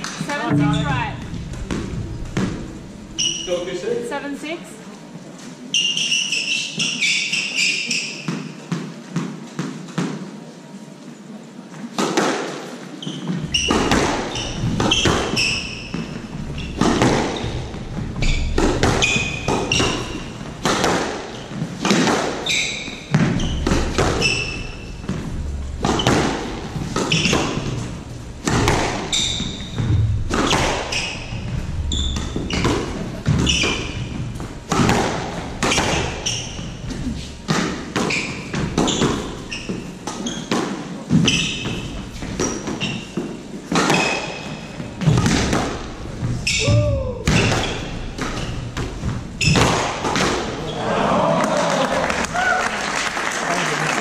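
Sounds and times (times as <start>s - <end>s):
shoes squeaking on hardwood: 0.0s - 3.9s, 5.4s - 8.6s, 12.9s - 50.8s
squash ball cracks: 13.6s - 36.8s, 47.2s - 50.6s.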